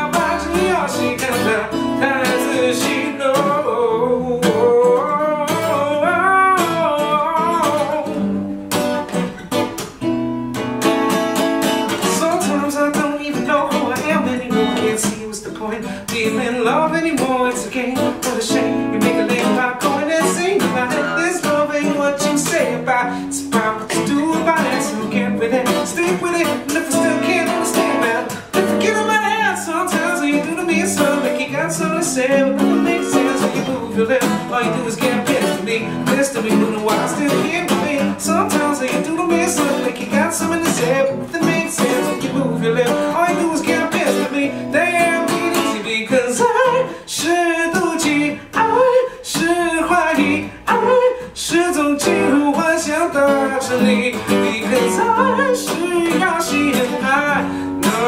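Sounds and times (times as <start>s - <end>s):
man singing: 0.0s - 8.4s, 11.8s - 58.0s
acoustic guitar strumming: 0.0s - 58.0s.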